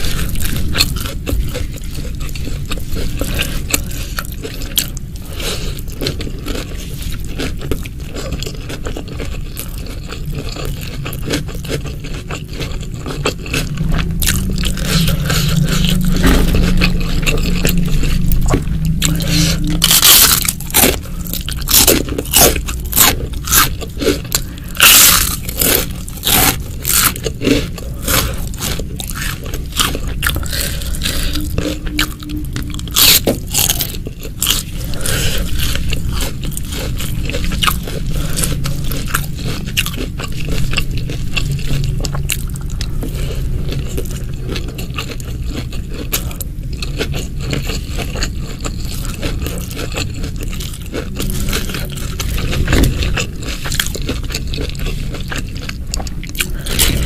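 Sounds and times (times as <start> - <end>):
person chewing crunchy food: 0.0 - 57.0.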